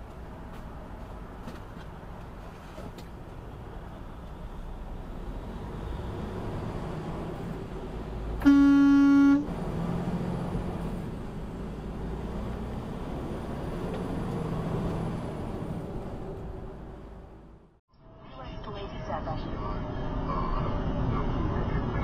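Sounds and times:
truck engine and road noise: 0:00.0 - 0:22.0
loud truck horn blast: 0:08.4 - 0:09.6.

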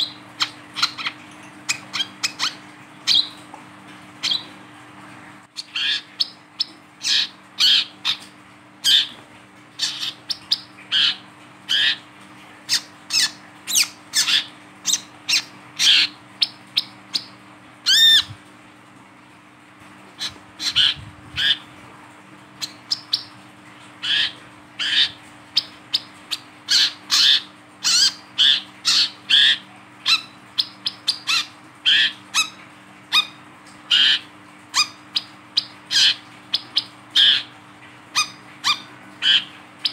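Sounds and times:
bird chirping: 0:00.0 - 0:03.4.

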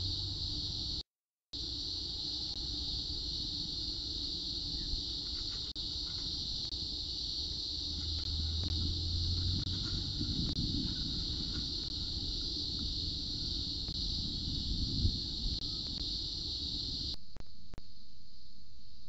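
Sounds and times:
cicada buzzing: 0:00.0 - 0:01.0, 0:01.6 - 0:17.2
low rumble: 0:07.8 - 0:16.0.

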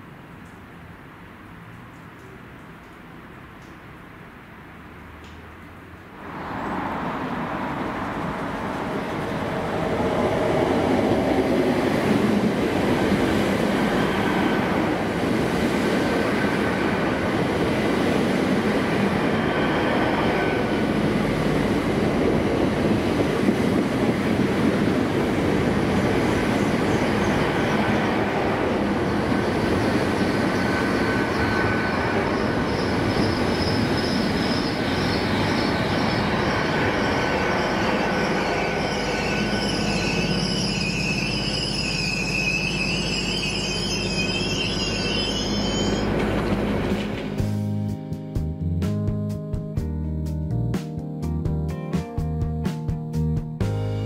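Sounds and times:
train diesel engines running: 0:06.2 - 0:47.6
thin high whine: 0:25.7 - 0:47.3.

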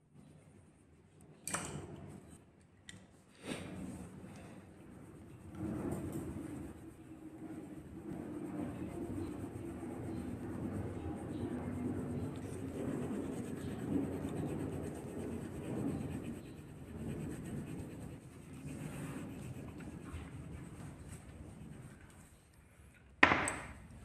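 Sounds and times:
coloured pencil shading on paper: 0:04.4 - 0:22.3.

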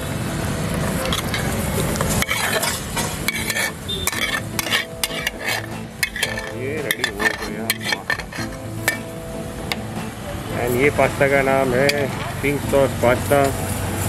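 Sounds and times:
metal spatula scraping a pan: 0:00.7 - 0:09.9, 0:11.8 - 0:12.5.

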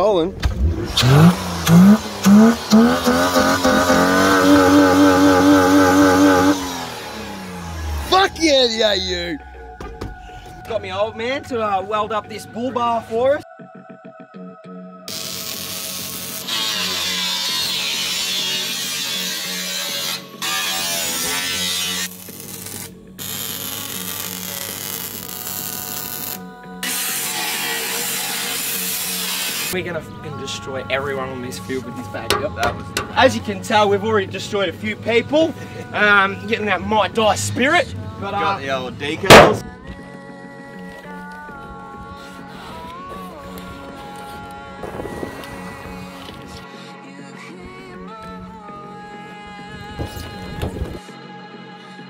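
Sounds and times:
background music: 0:00.0 - 0:52.0
car engine revving: 0:00.4 - 0:09.6
angle grinder grinding steel: 0:00.9 - 0:08.2, 0:15.1 - 0:22.5, 0:26.8 - 0:29.8.

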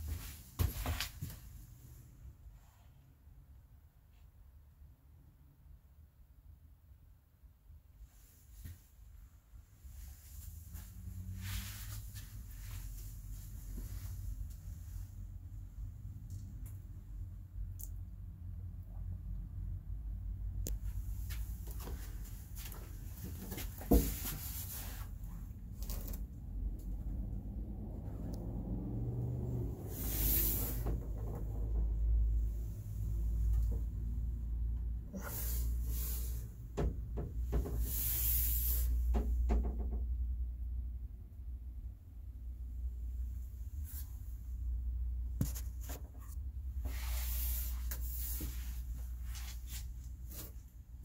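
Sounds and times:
steady low rumble: 0:09.2 - 0:39.1.

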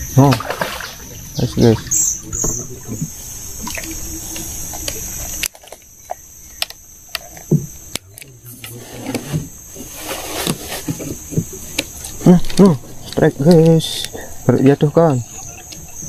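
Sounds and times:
high-pitched insect chorus: 0:00.0 - 0:16.0
faint clicks: 0:03.6 - 0:08.8.

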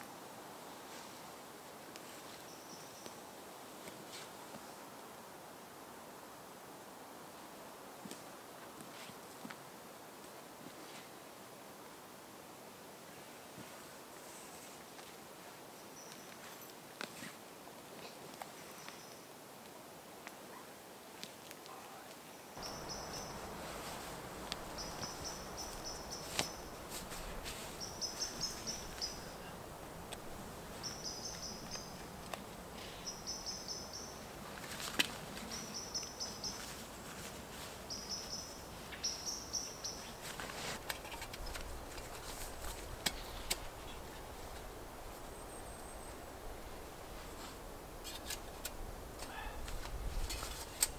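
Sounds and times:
forest hiss: 0:00.0 - 0:50.9
songbird singing high notes: 0:22.6 - 0:23.6
gear clicks and rustles: 0:40.2 - 0:44.7.

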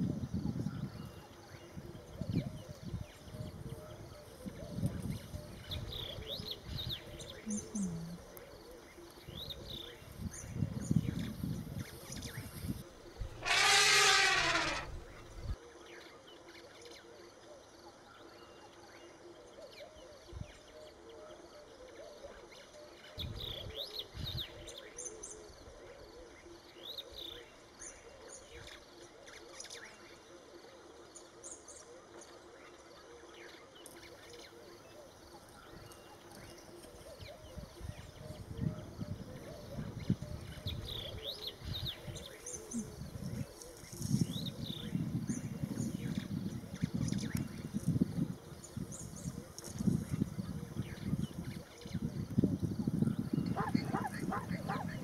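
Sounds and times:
birds chirping: 0:02.7 - 0:10.2, 0:13.2 - 0:15.6, 0:52.5 - 0:55.0
birds calling: 0:13.2 - 0:15.6, 0:52.9 - 0:55.0
low cooing: 0:13.3 - 0:15.6, 0:53.5 - 0:55.0.

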